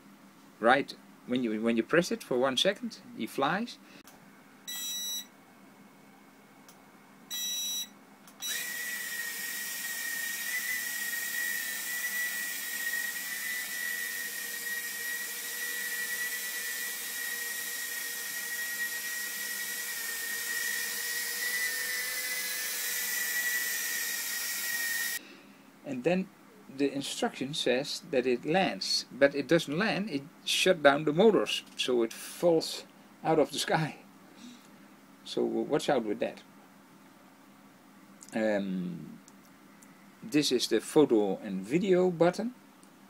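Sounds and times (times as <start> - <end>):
short beep: 4.7 - 5.3, 7.3 - 7.9
quadcopter motors whining: 8.4 - 25.2.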